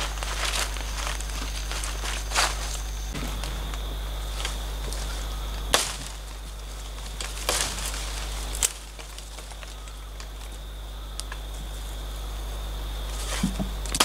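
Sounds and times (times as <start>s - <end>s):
machete chopping bamboo: 3.1s - 10.3s.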